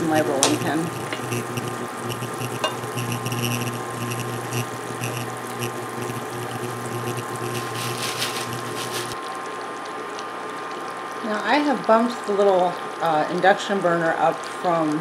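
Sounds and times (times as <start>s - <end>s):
induction burner hum and whine: 0.0s - 9.6s
syrup boiling with crackles: 0.0s - 15.0s.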